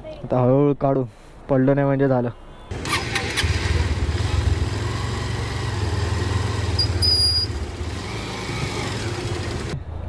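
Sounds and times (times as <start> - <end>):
motorcycle engine running slowly: 2.7 - 9.8
brief high squeak: 6.8 - 7.6.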